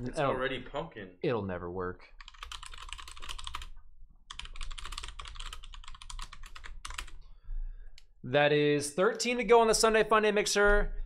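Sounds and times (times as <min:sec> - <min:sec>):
fast typing on keyboard: 0:02.2 - 0:07.2.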